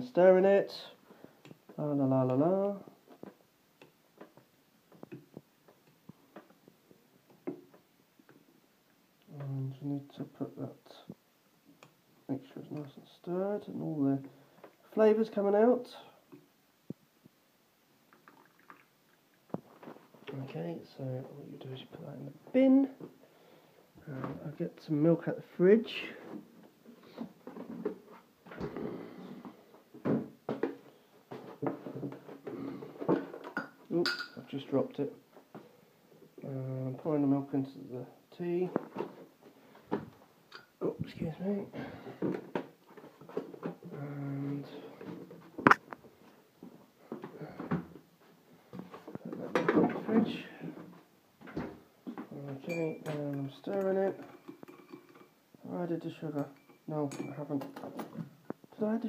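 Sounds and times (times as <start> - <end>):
knocks and clunks of items: 26.3 - 34.4, 48.7 - 53.2.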